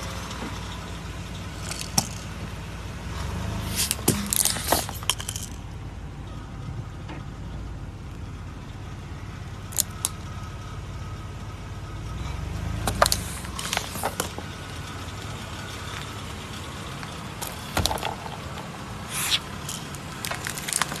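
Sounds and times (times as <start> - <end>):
car engine rumbling: 0.0 - 21.0
objects cracking under tyres: 1.5 - 5.7, 9.7 - 10.2, 12.7 - 16.2, 16.8 - 21.0.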